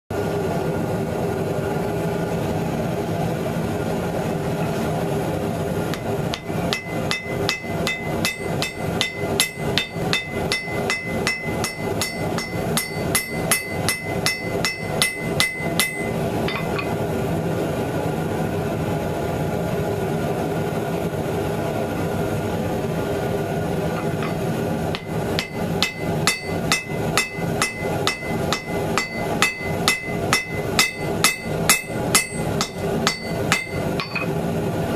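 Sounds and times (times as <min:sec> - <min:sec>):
steady background noise: 0:00.1 - 0:34.9
hammer blows on anvil: 0:05.9 - 0:17.0, 0:23.9 - 0:34.4.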